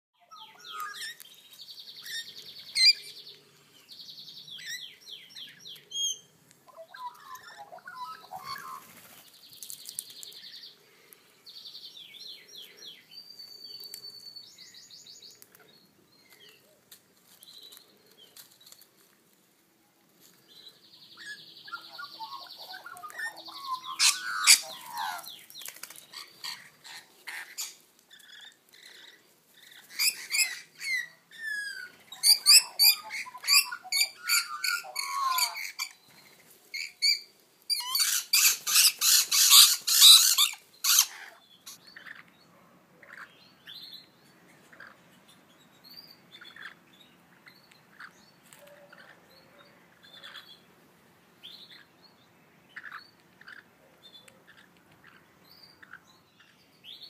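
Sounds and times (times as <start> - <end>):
birds screeching and chattering: 0.2 - 11.2, 20.6 - 50.7.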